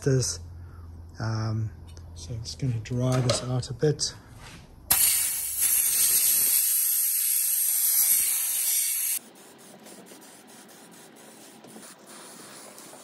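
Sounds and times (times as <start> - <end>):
compressed air blow gun hissing: 4.9 - 9.2.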